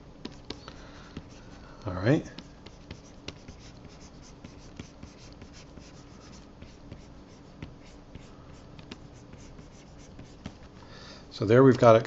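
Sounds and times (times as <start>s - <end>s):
stylus scratching on tablet: 1.2s - 10.8s.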